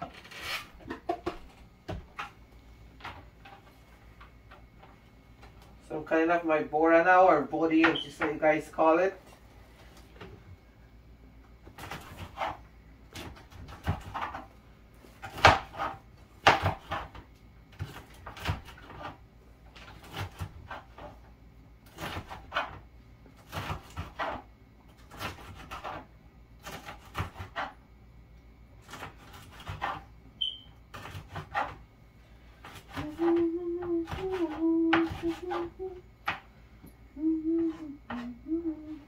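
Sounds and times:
knife chopping on wooden board: 0:11.8 - 0:14.5, 0:15.2 - 0:17.2, 0:25.1 - 0:27.8, 0:28.9 - 0:30.0.

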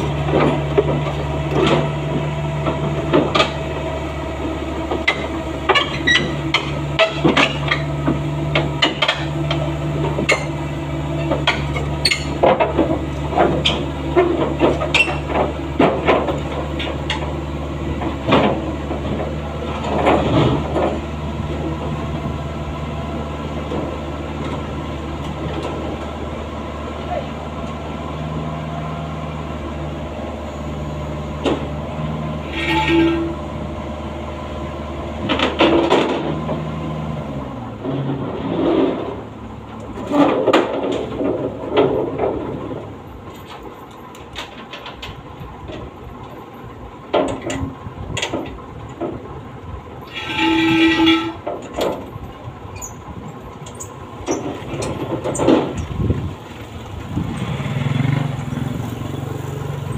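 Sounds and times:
metal ramps clanking: 0:04.9 - 0:10.6, 0:11.2 - 0:21.8, 0:32.4 - 0:33.5, 0:35.2 - 0:36.7, 0:37.8 - 0:49.3, 0:50.0 - 0:59.9
diesel engine idling: 0:39.1 - 0:59.9
motorcycle engine approaching: 0:56.2 - 0:59.9.

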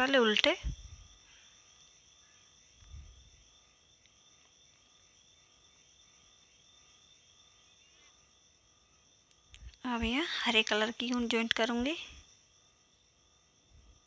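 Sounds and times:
faint insect chirring: 0:00.0 - 0:14.0.

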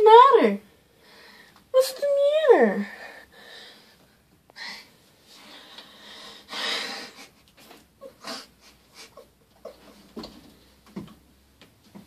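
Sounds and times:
cat hissing: 0:08.1 - 0:09.8.

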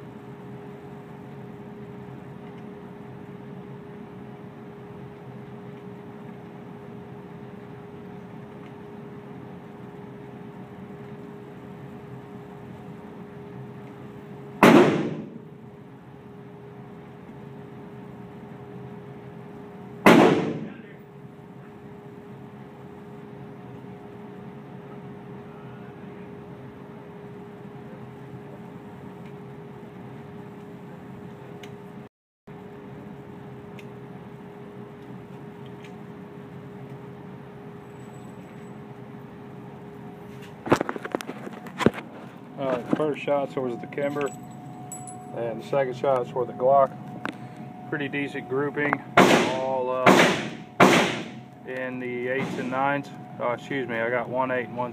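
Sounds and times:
ventilation hum: 0:00.0 - 0:54.9
pistol shots echoing indoors: 0:14.6 - 0:15.4, 0:20.1 - 0:20.8, 0:49.2 - 0:51.4.

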